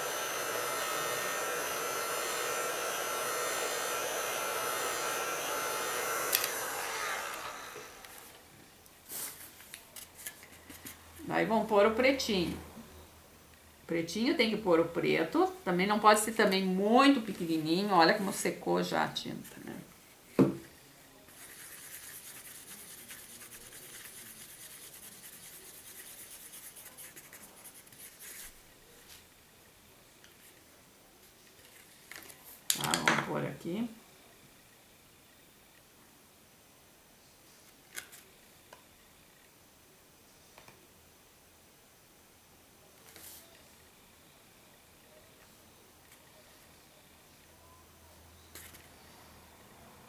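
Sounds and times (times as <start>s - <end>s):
fan winding down: 0.0s - 8.3s
heat gun blowing: 0.0s - 8.4s
tool rubbing on paper: 21.3s - 28.6s.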